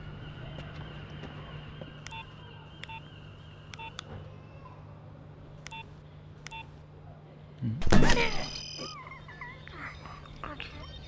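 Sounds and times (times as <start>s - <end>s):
phone keypad beeps: 2.1s - 3.0s, 3.8s - 4.0s, 5.7s - 5.9s, 6.5s - 6.7s.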